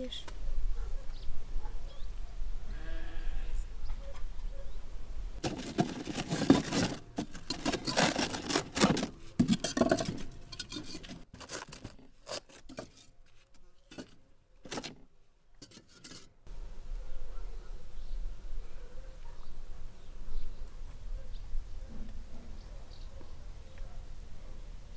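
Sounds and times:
plastic liner crinkling: 0:05.4 - 0:15.0
crackles and scrapes: 0:05.4 - 0:16.5.

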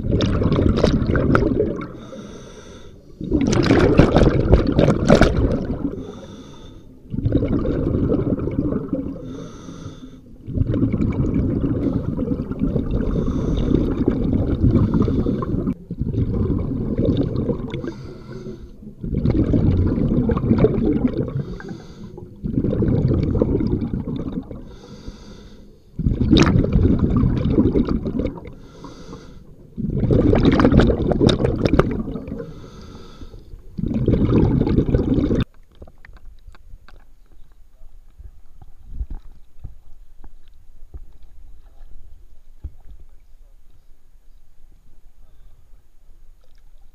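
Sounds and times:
exhaled bubbles burbling: 0:00.0 - 0:02.4, 0:03.2 - 0:06.4, 0:07.0 - 0:09.6, 0:10.3 - 0:24.8, 0:25.9 - 0:36.2
regulator inhalation hiss: 0:06.0 - 0:06.9, 0:09.2 - 0:10.3, 0:17.8 - 0:18.8, 0:21.3 - 0:22.4, 0:24.6 - 0:25.8, 0:32.4 - 0:33.6.

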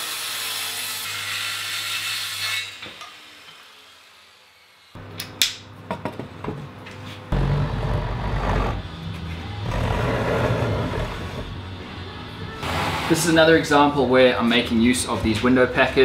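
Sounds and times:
circular saw cutting wood: 0:00.0 - 0:05.0, 0:07.3 - 0:11.6, 0:12.5 - 0:13.9.

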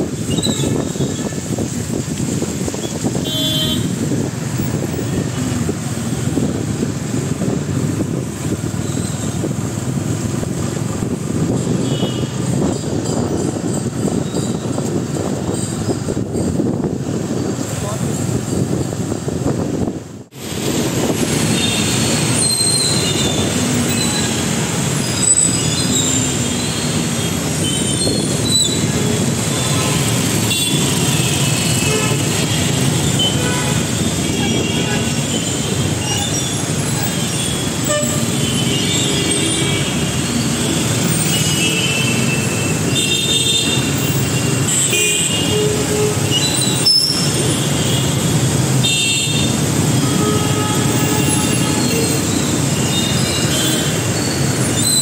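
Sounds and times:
wind rushing over microphone: 0:00.0 - 0:25.0
traffic on wet road: 0:00.0 - 0:55.0.

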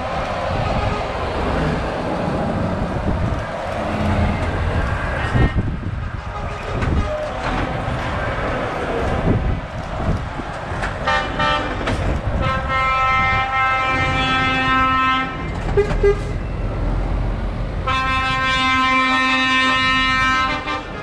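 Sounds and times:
diesel truck engines: 0:00.0 - 0:21.0
lorry air horn blasts: 0:12.4 - 0:15.4, 0:17.8 - 0:20.9.

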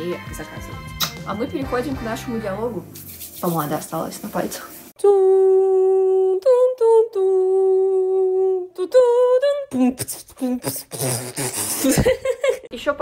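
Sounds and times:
person humming a tune: 0:05.0 - 0:11.9.

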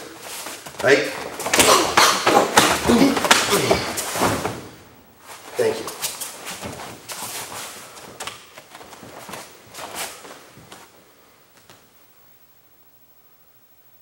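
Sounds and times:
heavy cloth rustling: 0:00.0 - 0:11.3
bare feet scuffing on mats: 0:05.2 - 0:11.0.

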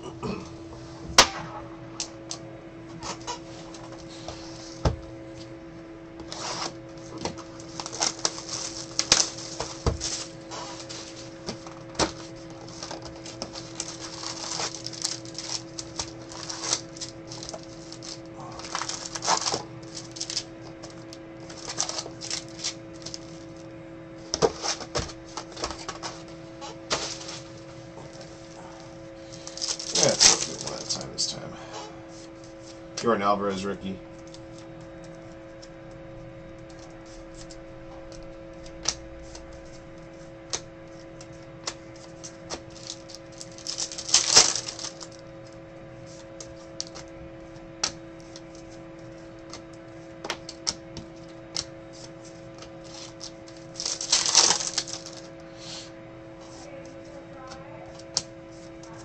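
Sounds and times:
steady low hum: 0:00.0 - 0:59.0
wrappers crinkling and tearing: 0:06.3 - 0:23.7, 0:24.4 - 0:26.3, 0:26.9 - 0:28.3, 0:29.2 - 0:31.4, 0:41.6 - 0:47.6, 0:50.4 - 0:55.3.

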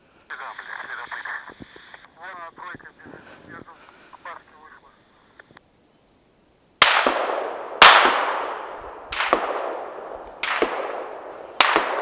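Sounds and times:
gunshots echoing: 0:06.8 - 0:12.0.

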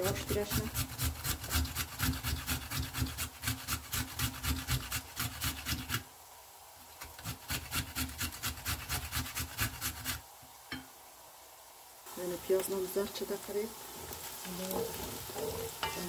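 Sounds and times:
food grated on metal grater: 0:00.0 - 0:06.0, 0:07.0 - 0:10.2.

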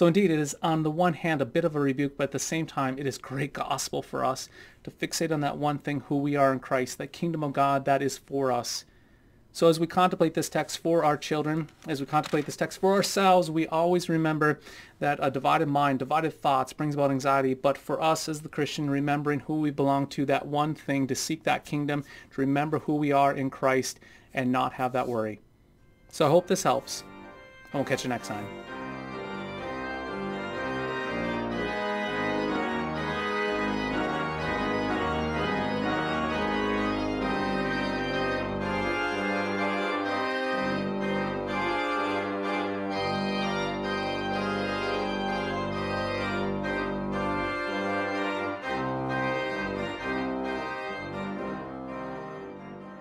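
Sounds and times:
music of sustained chords: 0:25.8 - 0:53.0.

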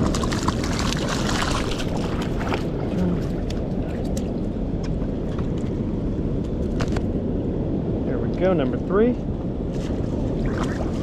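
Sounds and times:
fish splashing: 0:00.0 - 0:03.7
water rushing from spillway: 0:00.0 - 0:04.4.

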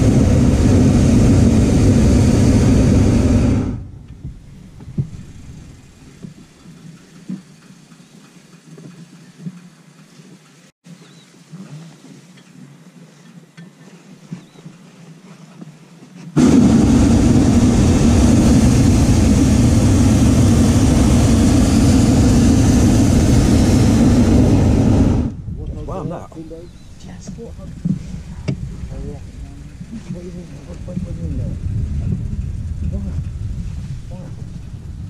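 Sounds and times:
propane burner roaring: 0:00.0 - 0:06.3, 0:16.4 - 0:35.0.

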